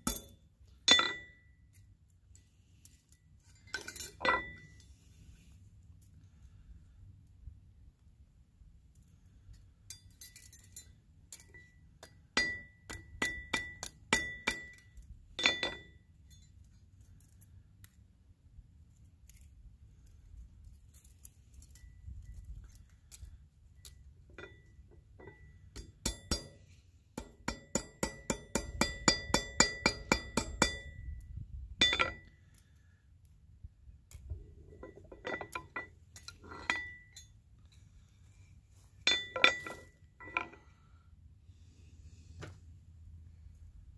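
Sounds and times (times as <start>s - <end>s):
hammer clinking on metal: 0.0s - 1.5s, 9.9s - 16.4s, 24.4s - 31.2s, 31.8s - 32.3s, 39.1s - 40.6s.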